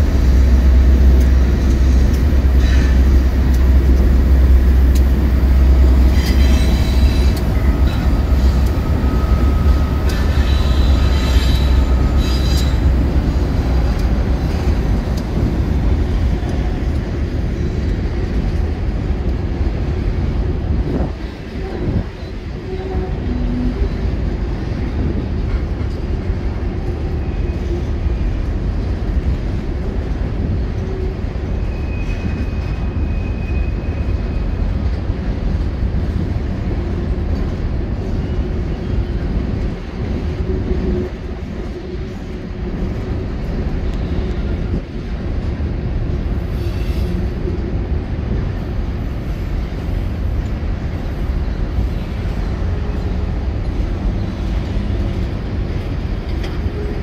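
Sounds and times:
diesel locomotives rumbling: 0:00.0 - 0:57.0
train wheel squeals: 0:01.6 - 0:03.3, 0:05.6 - 0:14.8, 0:26.8 - 0:28.4, 0:30.4 - 0:34.9, 0:37.9 - 0:39.5, 0:46.4 - 0:47.8, 0:50.9 - 0:57.0.

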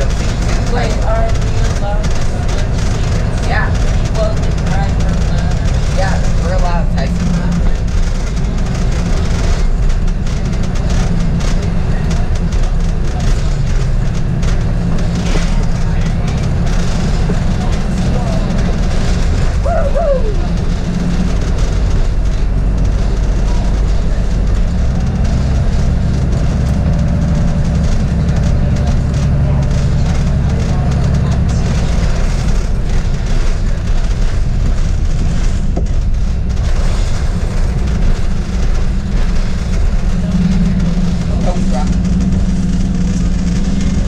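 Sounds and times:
bus engine drone: 0:00.0 - 0:44.0.

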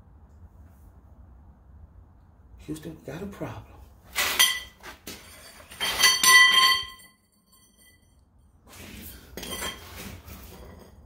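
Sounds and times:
metal tools clanking: 0:04.2 - 0:08.1, 0:09.4 - 0:11.0.

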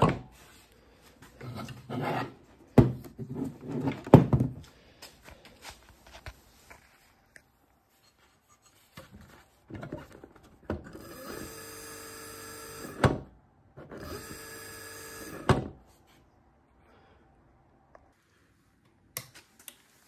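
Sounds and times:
sewing machine motor whine: 0:11.0 - 0:13.0, 0:14.0 - 0:15.5.

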